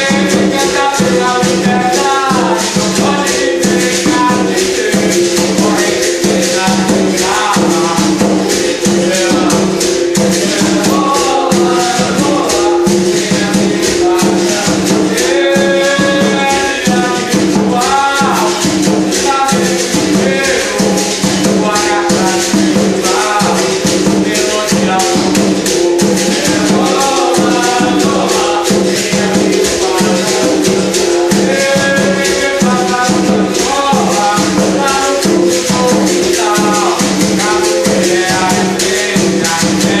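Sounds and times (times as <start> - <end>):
basket rattle shaking: 0.0 - 40.0
berimbau struck in rhythm: 0.0 - 40.0
hand drum: 0.0 - 40.0
voices singing: 0.0 - 40.0.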